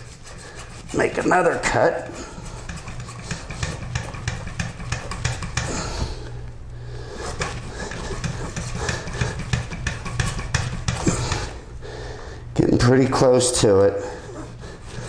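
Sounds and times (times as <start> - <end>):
hand saw cutting plastic pipe: 0.0 - 5.9, 7.3 - 11.6, 14.4 - 15.0.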